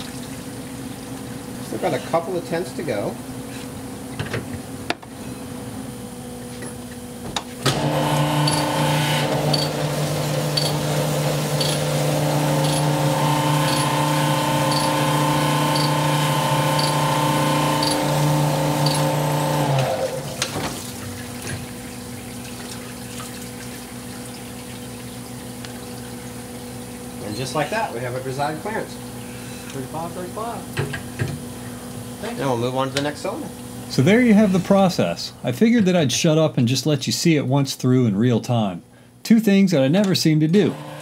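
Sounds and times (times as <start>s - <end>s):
low machine hum: 0.0s - 41.0s
cylinder hone humming: 4.8s - 24.3s.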